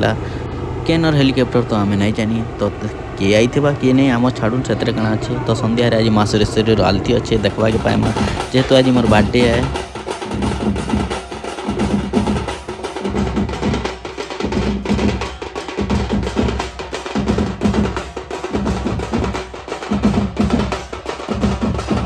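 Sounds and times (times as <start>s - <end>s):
drum band playing fast rhythm: 5.4s - 22.0s.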